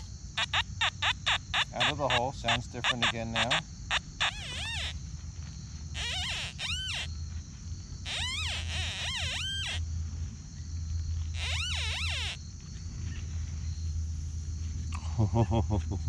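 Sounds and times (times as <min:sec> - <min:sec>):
metal detector warbling tone: 0:00.0 - 0:03.6, 0:04.2 - 0:04.9, 0:06.0 - 0:07.1, 0:08.1 - 0:09.8, 0:11.4 - 0:12.4
high insect buzz: 0:00.0 - 0:14.9.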